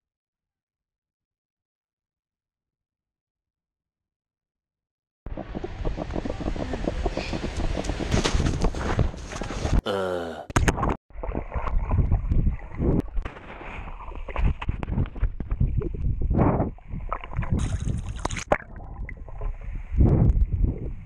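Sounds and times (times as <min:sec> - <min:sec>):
underwater gurgling and bubbling: 0:05.3 - 0:08.2, 0:11.1 - 0:13.2, 0:13.8 - 0:21.0
splash into water: 0:17.0 - 0:19.0.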